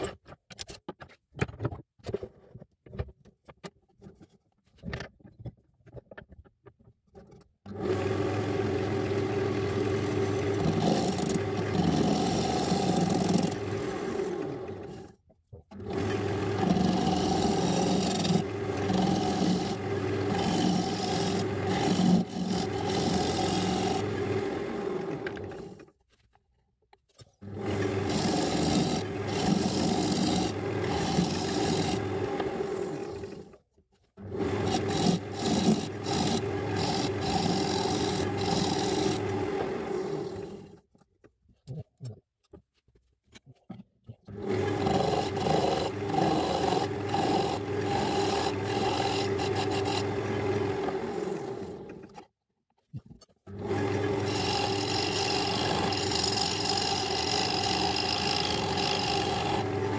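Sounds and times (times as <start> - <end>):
lathe motor hum: 7.7 - 15.1, 15.8 - 25.8, 27.6 - 33.4, 34.3 - 40.7, 44.4 - 52.1, 53.6 - 59.9
tool rasping against wood: 10.4 - 14.2, 16.1 - 24.2, 27.8 - 32.6, 34.5 - 39.4, 44.6 - 51.1, 54.1 - 59.9.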